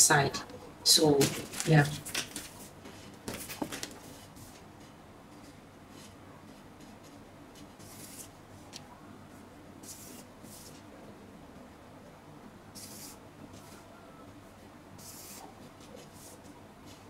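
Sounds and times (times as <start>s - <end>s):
marker pen scratching paper: 7.8s - 8.3s, 9.8s - 10.8s, 12.8s - 13.8s, 15.0s - 17.0s.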